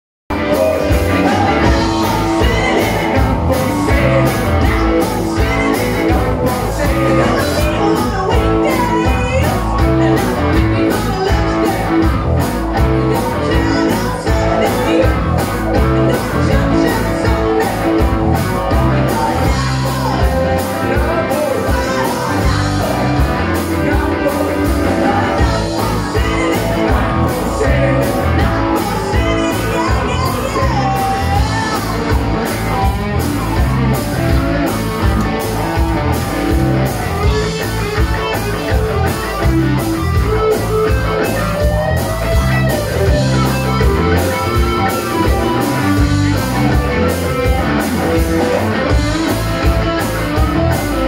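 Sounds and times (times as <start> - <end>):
drum kit beat: 0.3 - 51.0
electric guitars: 0.3 - 51.0.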